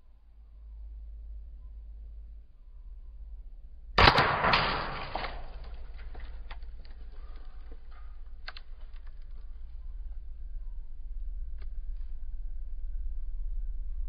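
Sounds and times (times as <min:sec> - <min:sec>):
fruit pieces scattering: 0:04.0 - 0:09.0
debris clicking on dry leaves: 0:04.0 - 0:09.7.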